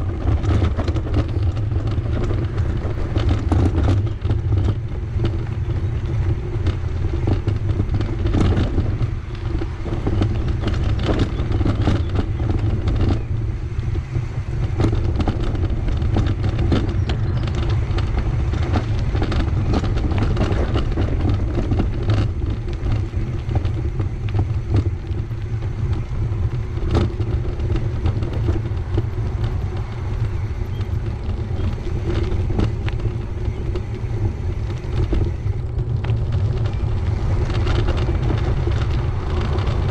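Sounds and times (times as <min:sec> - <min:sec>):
bicycle road rumble: 0:00.0 - 0:39.9
small clicks from bumps: 0:00.0 - 0:39.9
wind buffeting: 0:00.0 - 0:39.9.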